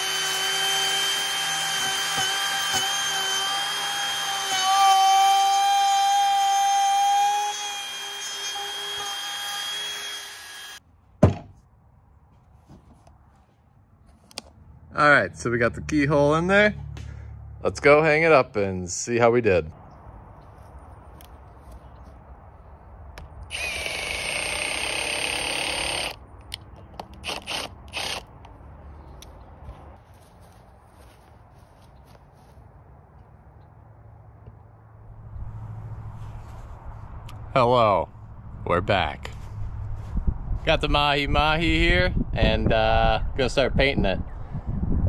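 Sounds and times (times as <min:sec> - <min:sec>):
cordless drill driving screw: 0:00.0 - 0:10.8, 0:23.5 - 0:26.2, 0:27.0 - 0:28.3
router whining: 0:00.0 - 0:10.8, 0:23.4 - 0:26.2, 0:27.0 - 0:28.3.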